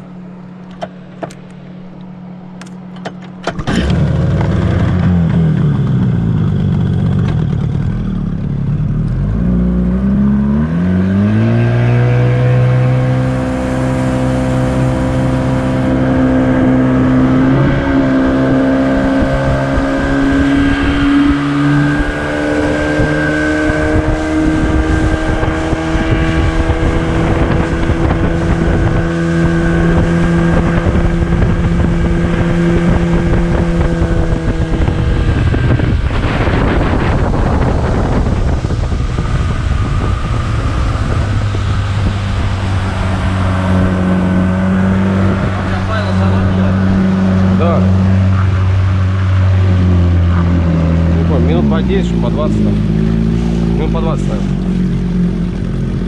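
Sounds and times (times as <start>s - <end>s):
outboard motor revving: 0.0s - 56.0s
rushing fluttering noise: 12.6s - 56.0s.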